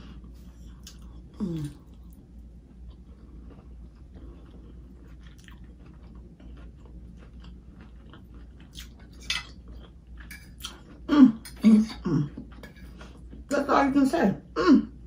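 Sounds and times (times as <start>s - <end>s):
person chewing food: 0.0s - 13.5s
person humming mm: 1.4s - 1.9s.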